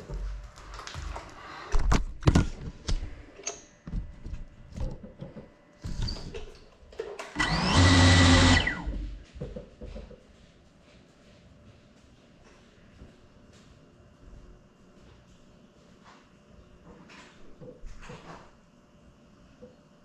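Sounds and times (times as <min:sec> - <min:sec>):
drone motors whining: 0:07.4 - 0:09.1.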